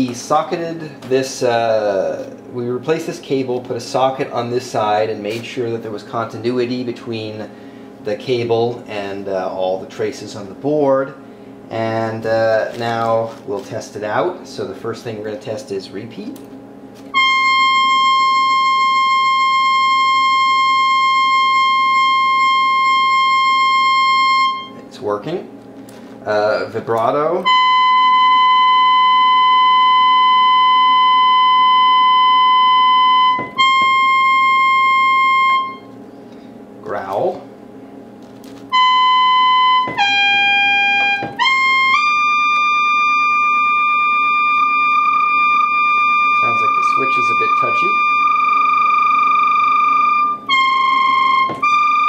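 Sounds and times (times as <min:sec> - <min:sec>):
synthesizer high held note: 0:17.1 - 0:24.8, 0:27.4 - 0:36.0, 0:38.7 - 0:52.0.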